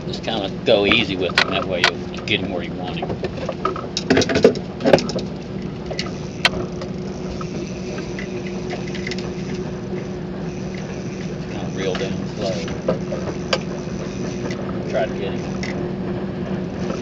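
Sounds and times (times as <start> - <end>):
steady low hum: 0.0 - 17.0
fishing reel clicks and knocks: 3.4 - 15.8.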